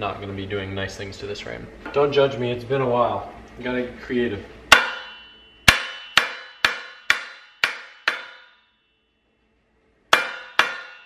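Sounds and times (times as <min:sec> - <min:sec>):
metal frame ringing: 0:04.7 - 0:09.2, 0:10.1 - 0:11.0
sharp knocks on wooden block: 0:05.7 - 0:08.5, 0:10.1 - 0:11.0.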